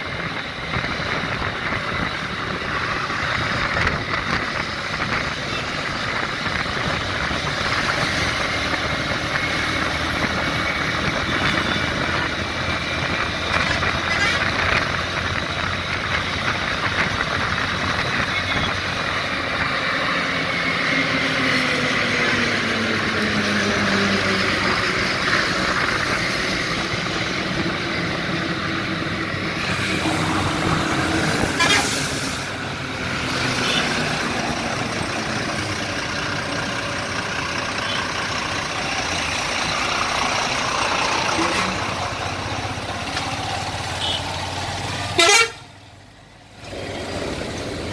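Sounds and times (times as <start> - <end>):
engine and road noise: 0.0 - 47.9
vehicle horns honking: 13.5 - 14.6, 31.4 - 32.1, 33.6 - 34.0, 43.9 - 44.4, 45.1 - 45.7.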